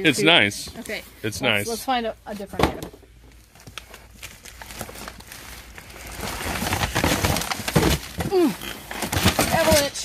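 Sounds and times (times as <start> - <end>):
cardboard and plastic rustling: 0.6 - 1.6, 2.3 - 10.0.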